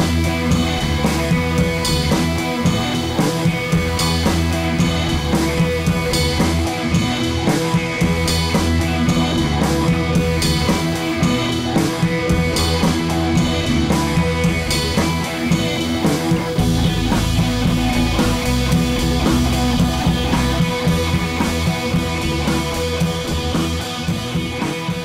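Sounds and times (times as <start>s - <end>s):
rock music with guitar and drums: 0.0s - 25.0s.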